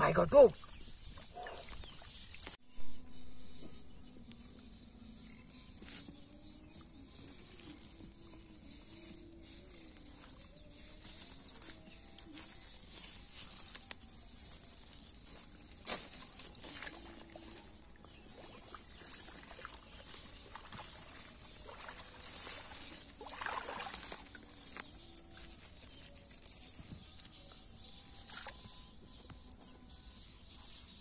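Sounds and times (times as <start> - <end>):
water sloshing and trickling: 0.4 - 2.6, 12.4 - 29.6
leaves rustling and crackling: 7.3 - 8.0, 10.8 - 17.7, 21.5 - 27.3.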